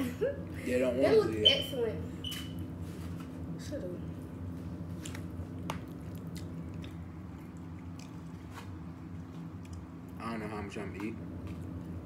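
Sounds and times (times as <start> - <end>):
steady low hum: 0.0 - 12.0
wet chewing: 5.0 - 10.2.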